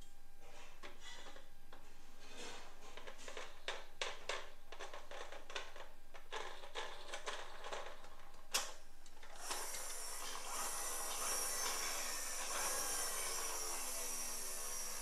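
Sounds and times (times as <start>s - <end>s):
plastic toys clicking and knocking: 3.0s - 9.6s.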